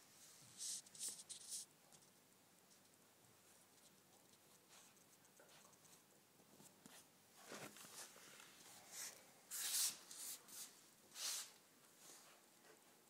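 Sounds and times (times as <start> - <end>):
puppy paws scratching on rug: 3.4 - 12.4.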